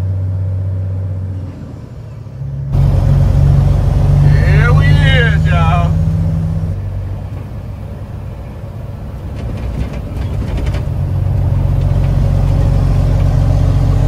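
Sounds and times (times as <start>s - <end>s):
truck engine running: 0.0s - 14.0s
faint rattles: 8.5s - 12.6s.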